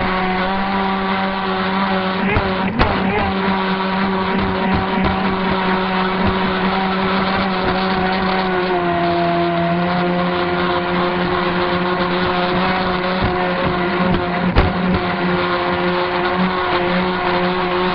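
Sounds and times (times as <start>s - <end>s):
model boat motor running high: 0.0s - 17.9s
water rushing and spray hissing: 0.0s - 17.9s.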